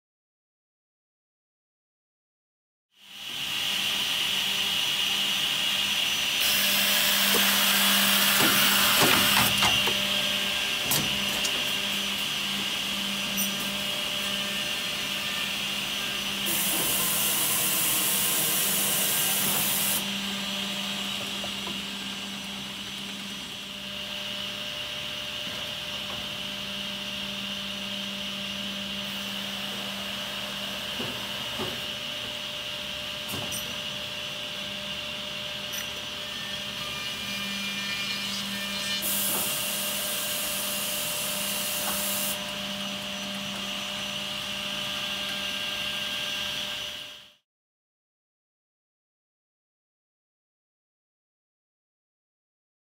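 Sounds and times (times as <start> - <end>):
edgebander machine whine and hiss: 3.0 - 27.5, 28.1 - 34.0.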